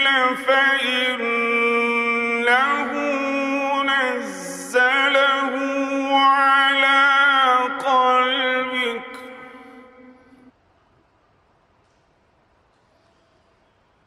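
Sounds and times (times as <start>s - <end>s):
man reciting melodically: 0.0s - 10.4s.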